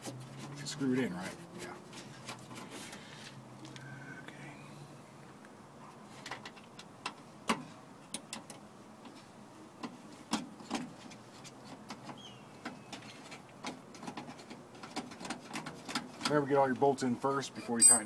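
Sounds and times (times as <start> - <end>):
metal bolts clicking and tapping: 17.8 - 18.0.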